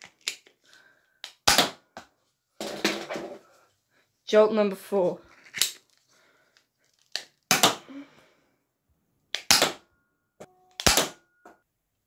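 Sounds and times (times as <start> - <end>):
toy dart pistol plastic snaps: 9.3 - 9.8.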